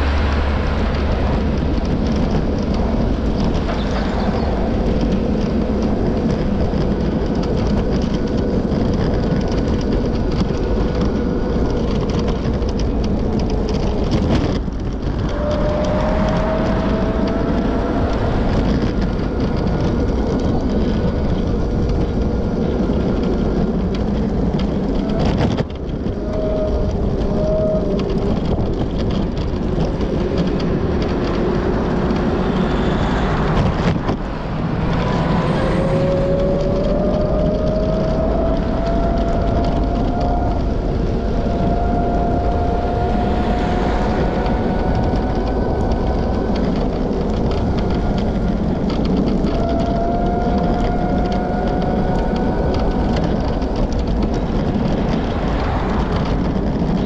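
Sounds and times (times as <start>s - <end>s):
bicycle rolling noise: 0.0s - 57.0s
rushing wind: 0.0s - 57.0s
faint rising whine: 27.2s - 57.0s.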